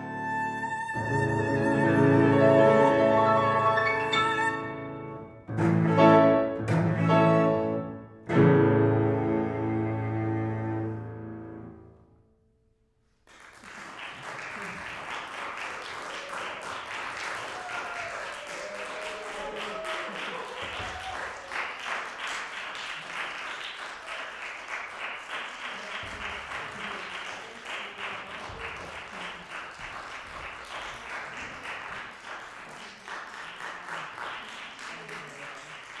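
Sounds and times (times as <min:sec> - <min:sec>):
audience applauding: 0:13.2 - 0:36.0.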